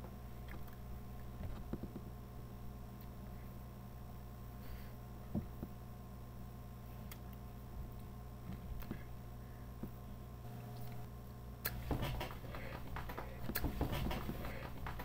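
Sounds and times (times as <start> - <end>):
low steady hum: 0.0 - 15.0
puppet rustling and scraping: 11.8 - 15.0.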